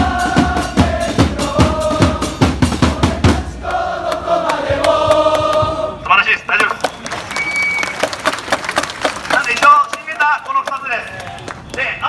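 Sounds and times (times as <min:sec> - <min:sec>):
bass drum beats: 0:00.0 - 0:03.6
crowd singing a chant: 0:00.0 - 0:06.1.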